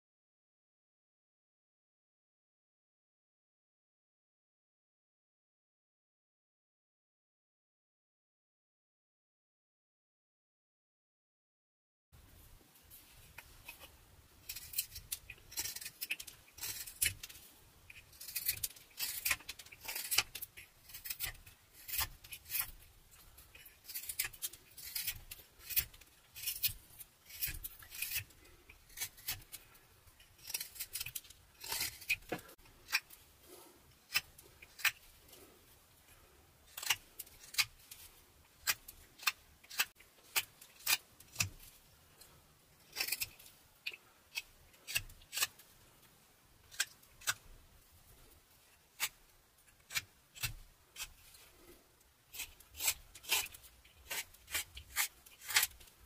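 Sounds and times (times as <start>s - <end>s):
knife slicing wood shavings: 14.4s - 22.8s, 23.5s - 29.8s, 30.4s - 35.0s, 52.3s - 55.9s.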